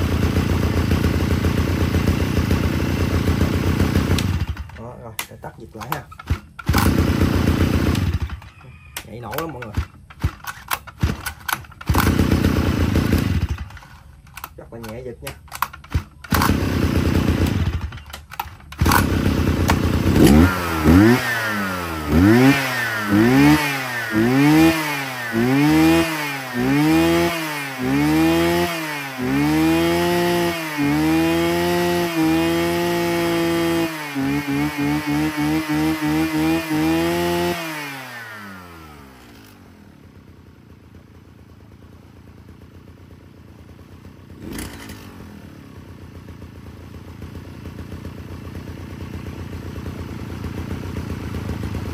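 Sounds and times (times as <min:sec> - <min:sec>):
brush cutter engine revving: 0:00.0 - 0:40.0, 0:44.4 - 0:45.5.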